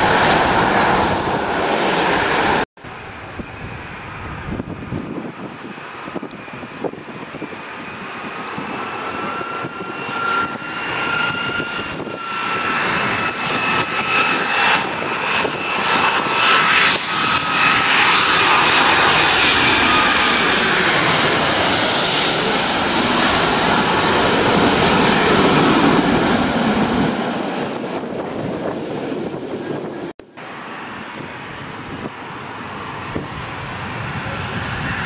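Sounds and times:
jet airliner engines whining: 0:00.0 - 0:35.0
wind buffeting microphone: 0:00.0 - 0:35.0.

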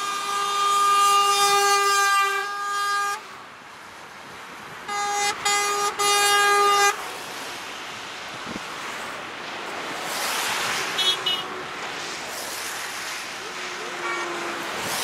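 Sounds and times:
truck air horn blasts: 0:00.0 - 0:03.4, 0:04.9 - 0:07.0, 0:10.9 - 0:11.6, 0:13.6 - 0:15.0
motorway traffic noise: 0:00.0 - 0:15.0.

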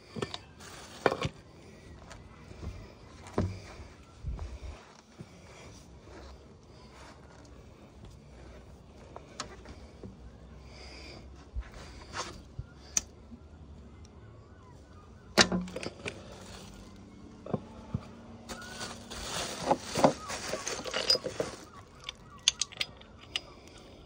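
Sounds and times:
metal parts clicking and clinking: 0:15.4 - 0:16.8, 0:19.5 - 0:24.0.

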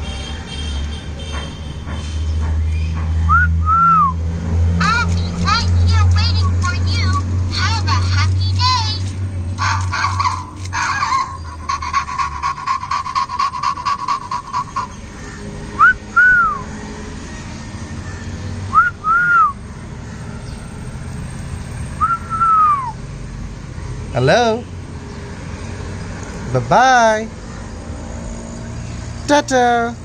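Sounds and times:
whistle-like chirps: 0:02.7 - 0:04.2, 0:15.8 - 0:16.7, 0:18.7 - 0:19.6, 0:22.0 - 0:23.0
toy steady tone with rapid clicking: 0:04.8 - 0:15.0.

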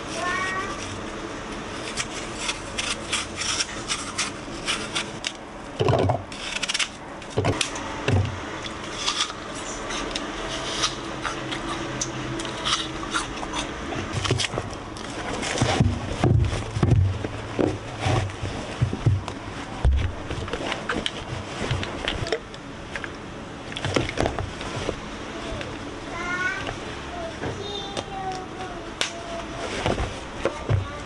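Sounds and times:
knife cutting through apple: 0:01.8 - 0:05.3, 0:08.9 - 0:15.9.

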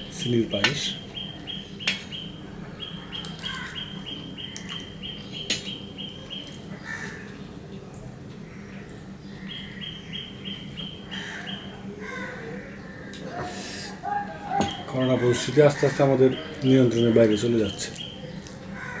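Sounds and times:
small bird chirping: 0:00.2 - 0:07.6, 0:08.7 - 0:11.8, 0:14.4 - 0:19.0.

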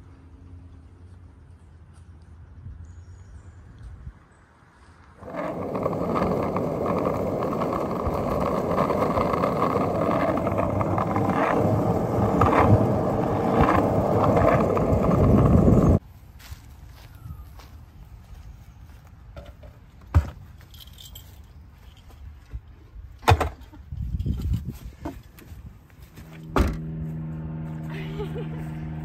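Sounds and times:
skateboard wheels rolling on asphalt: 0:05.0 - 0:16.0
skateboard clacks: 0:05.2 - 0:16.0.

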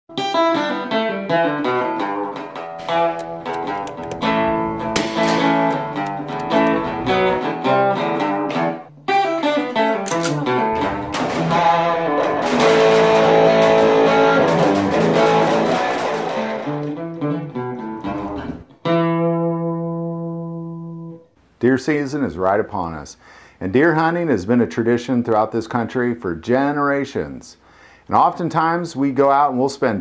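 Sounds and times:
strummed guitar chords: 0:00.1 - 0:21.2.

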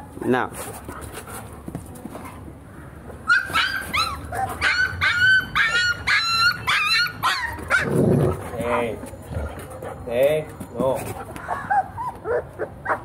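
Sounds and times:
dog whining and yipping: 0:03.3 - 0:08.1, 0:11.4 - 0:13.0.

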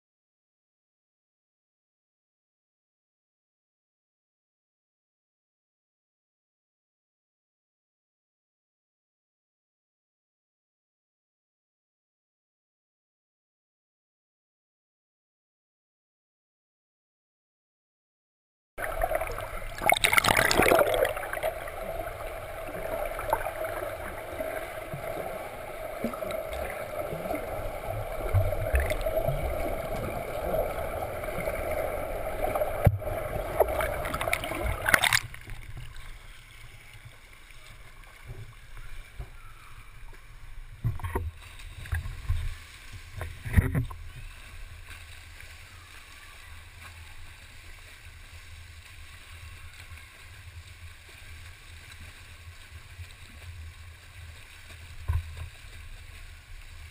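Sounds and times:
steady hum: 0:18.8 - 0:35.1
muffled underwater churning water: 0:18.8 - 0:56.9.

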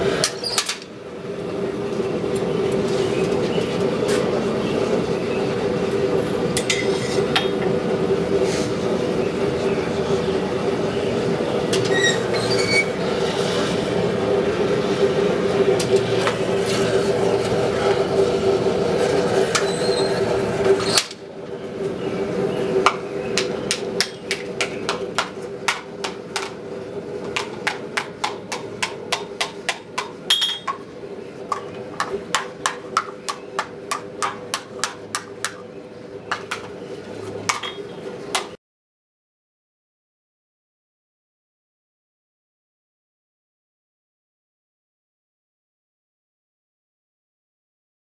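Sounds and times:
gas forge burner drone: 0:00.0 - 0:38.6
hammer striking steel on anvil: 0:27.4 - 0:30.8.

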